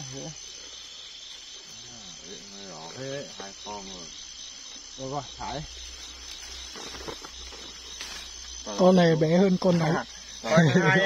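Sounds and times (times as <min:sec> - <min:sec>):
night insects chirping: 0:00.0 - 0:11.0
faint rustles: 0:05.7 - 0:08.7.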